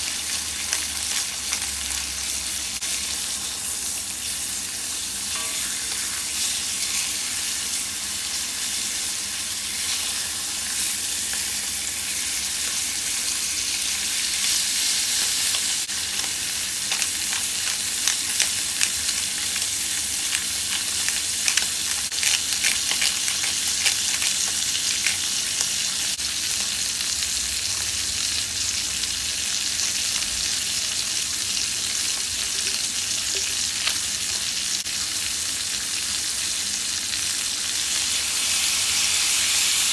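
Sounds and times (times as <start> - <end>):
meat sizzling in a skillet: 0.0 - 39.9
fat popping and crackling: 16.8 - 25.3.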